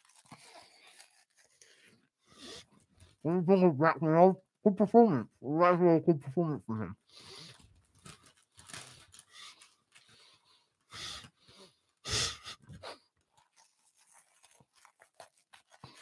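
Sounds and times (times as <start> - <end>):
man huffing breaths: 10.9 - 13.0.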